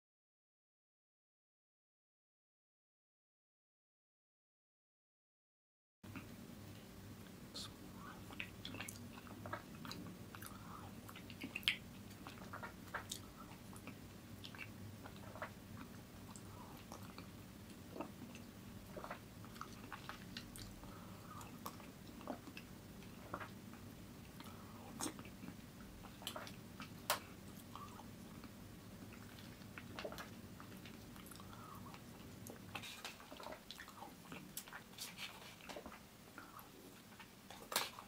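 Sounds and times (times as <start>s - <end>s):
faint low hum: 6.1s - 38.0s
man chewing food: 6.1s - 38.0s.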